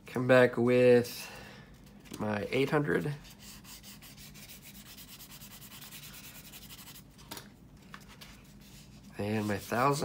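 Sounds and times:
sandpaper rubbing on plastic: 2.7s - 7.0s, 8.6s - 10.0s.

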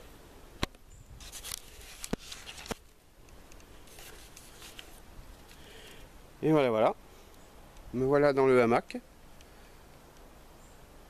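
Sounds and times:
camera handling rustling: 1.2s - 5.6s.

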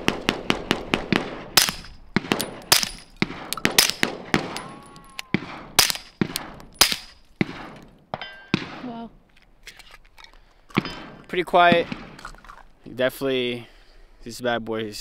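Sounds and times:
suppressed gunshots: 0.0s - 8.9s, 10.8s - 12.4s.

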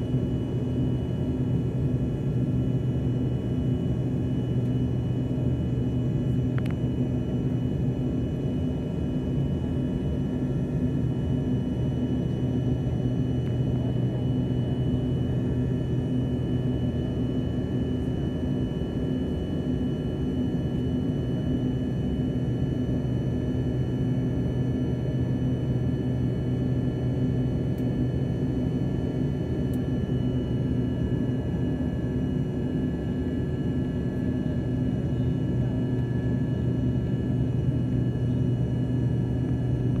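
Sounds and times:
jet engines droning: 25.4s - 40.0s.

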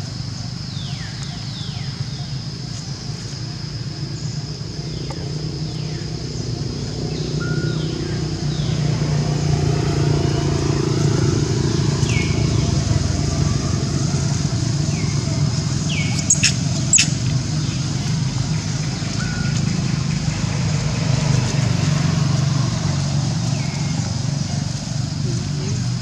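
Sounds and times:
engine running: 0.0s - 26.0s.

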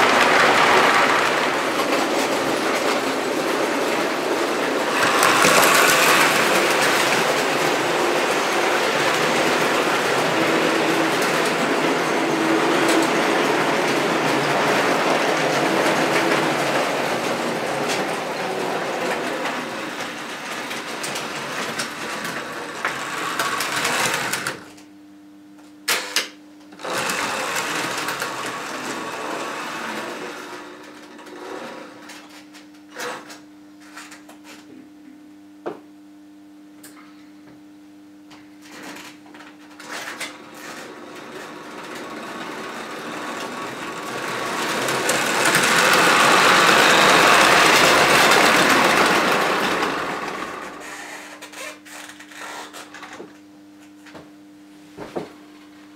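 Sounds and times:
wheels rattling on rails: 0.0s - 24.4s, 40.6s - 50.8s
model train motor whirring: 3.8s - 24.6s, 26.8s - 30.5s, 40.8s - 52.7s.

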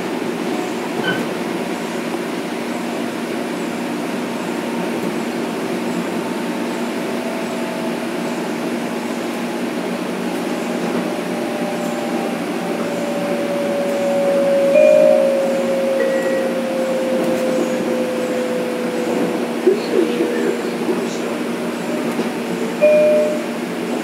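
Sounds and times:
train rolling noise: 0.0s - 24.0s
traction motor whine: 11.1s - 19.7s.

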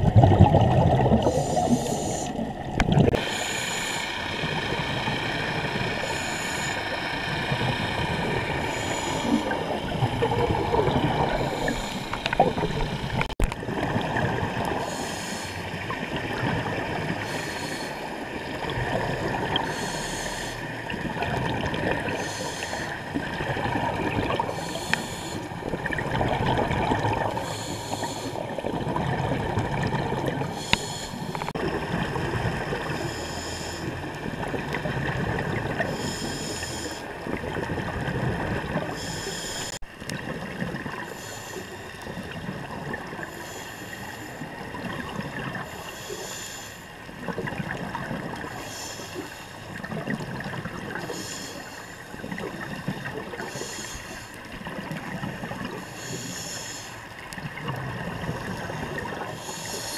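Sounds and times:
rumble of exhaled bubbles: 0.0s - 3.4s, 4.2s - 14.9s, 15.6s - 17.4s, 18.0s - 19.8s, 20.6s - 27.5s, 28.2s - 33.1s, 33.8s - 36.1s, 37.1s - 39.0s, 39.9s - 41.1s, 42.0s - 43.3s, 44.4s - 45.7s, 47.0s - 48.6s, 49.6s - 51.2s, 54.4s - 55.9s, 57.1s - 59.9s
regulator hiss: 3.2s - 9.6s, 14.8s - 15.6s, 19.6s - 20.6s, 30.6s - 31.5s, 55.8s - 57.0s, 59.4s - 59.9s.

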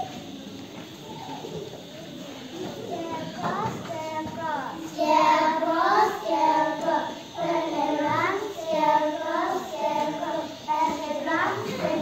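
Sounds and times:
children singing together: 2.8s - 12.0s.

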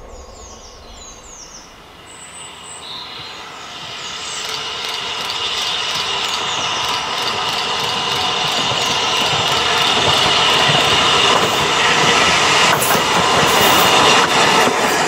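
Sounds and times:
birds chirping: 0.0s - 2.5s
steady high squeal: 0.0s - 11.8s
steam locomotive approaching: 0.0s - 15.0s.

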